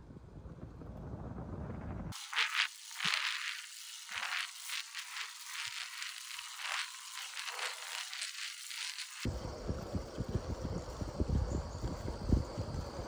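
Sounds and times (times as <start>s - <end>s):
tyre hiss on asphalt: 2.2s - 9.3s.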